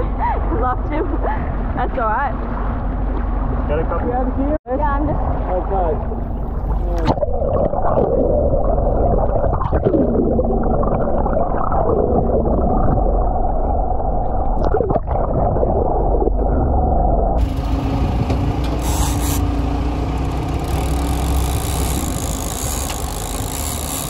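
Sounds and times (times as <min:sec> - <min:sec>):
low steady hum: 0:00.0 - 0:24.0
muffled underwater water rushing: 0:01.5 - 0:19.7.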